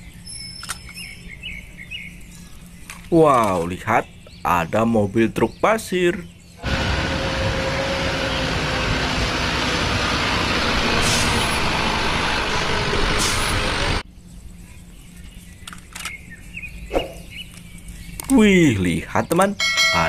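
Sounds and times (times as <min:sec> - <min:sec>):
dump truck engine running: 0:06.6 - 0:14.0.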